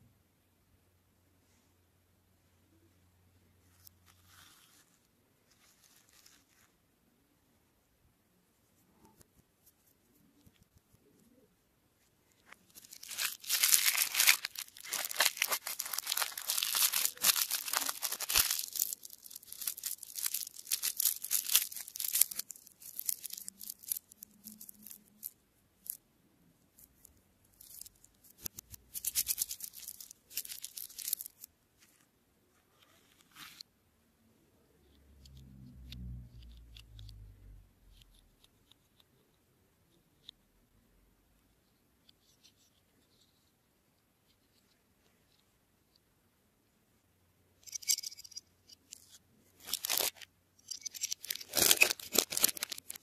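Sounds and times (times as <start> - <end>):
plastic wrapper crinkling: 12.4 - 26.0, 26.9 - 31.5, 47.6 - 53.0.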